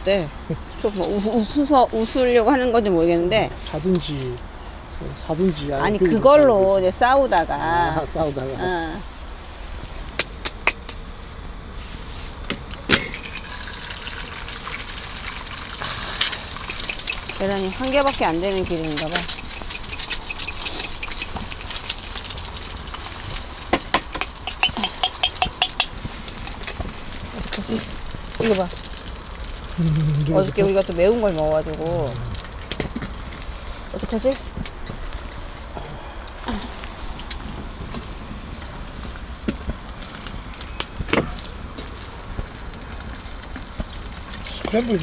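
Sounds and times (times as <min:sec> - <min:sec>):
egg frying in a pan: 0:12.8 - 0:35.7, 0:36.8 - 0:45.0
utensils and dishes clicking: 0:16.2 - 0:22.0.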